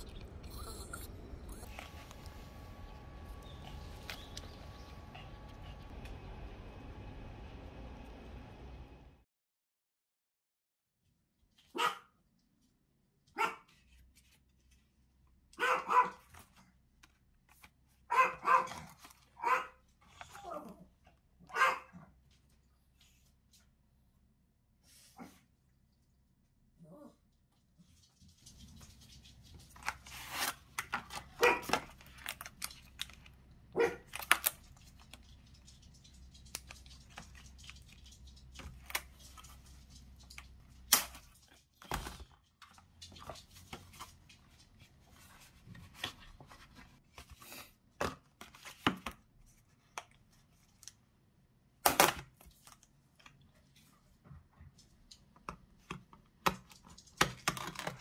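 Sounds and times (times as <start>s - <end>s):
plastic film crinkling and tearing: 29.4s - 33.4s, 34.0s - 35.8s.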